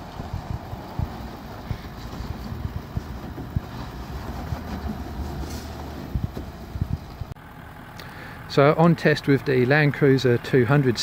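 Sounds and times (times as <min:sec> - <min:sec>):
engine running at low speed: 0:00.0 - 0:11.0
irregular low thumps: 0:00.2 - 0:03.7, 0:06.1 - 0:07.4.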